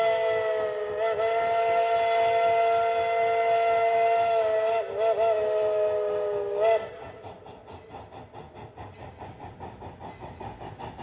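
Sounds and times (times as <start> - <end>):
steam locomotive whistle: 0.0 - 7.2.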